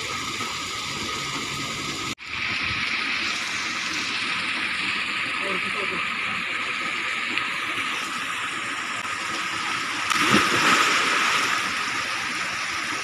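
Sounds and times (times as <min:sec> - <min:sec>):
rushing water: 0:00.0 - 0:13.0
person splashing into water: 0:10.1 - 0:11.7.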